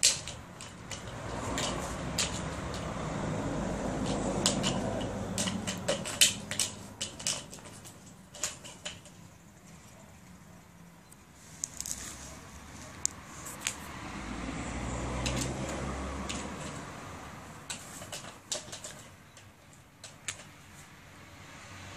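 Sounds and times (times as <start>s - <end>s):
plastic ball clicking and knocking: 0.0s - 3.0s, 4.0s - 9.2s, 17.6s - 20.6s.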